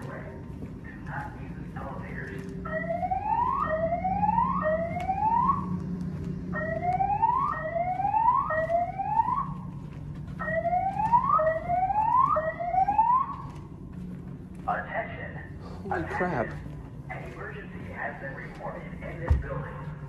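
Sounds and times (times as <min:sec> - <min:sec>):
steady low hum: 0:00.0 - 0:20.0
fire alarm whoop tone: 0:02.6 - 0:05.8, 0:06.5 - 0:09.6, 0:10.4 - 0:13.5.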